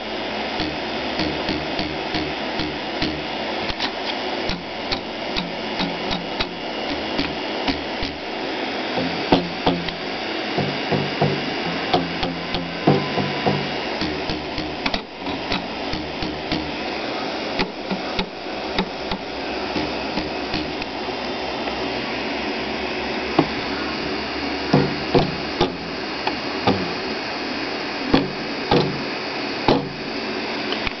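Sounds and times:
steady hiss: 0.0s - 31.0s
rubber belt plucked twang: 9.0s - 10.0s, 10.6s - 16.8s, 24.8s - 26.0s.

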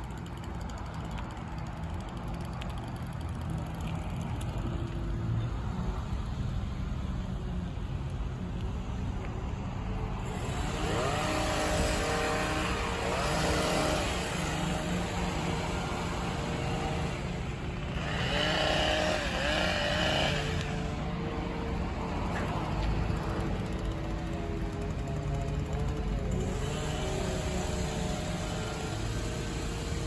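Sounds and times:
power trimmer engine revving: 10.2s - 30.0s
truck engine running: 10.2s - 30.0s.

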